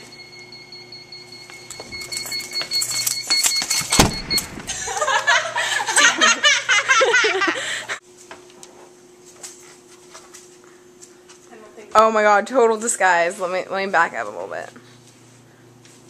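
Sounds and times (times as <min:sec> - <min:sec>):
thump: 0:04.0 - 0:04.7
girl laughing high-pitched: 0:04.7 - 0:08.0.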